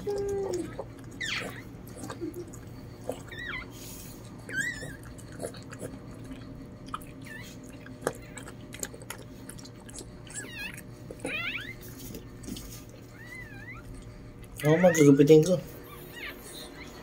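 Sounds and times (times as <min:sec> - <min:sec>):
puppy squeaking: 0:00.4 - 0:02.1, 0:03.1 - 0:03.8, 0:04.5 - 0:05.1, 0:10.2 - 0:12.1, 0:13.1 - 0:14.0, 0:14.6 - 0:17.0.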